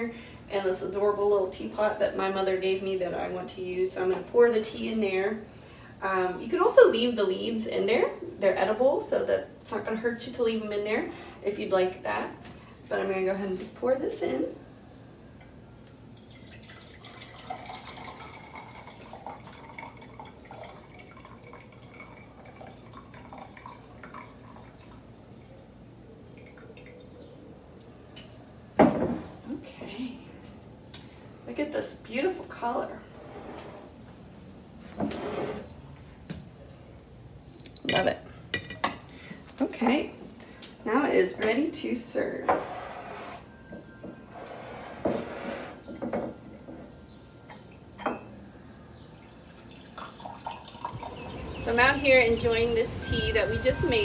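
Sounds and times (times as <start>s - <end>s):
tea trickling through strainer: 16.1s - 27.3s, 49.1s - 51.6s.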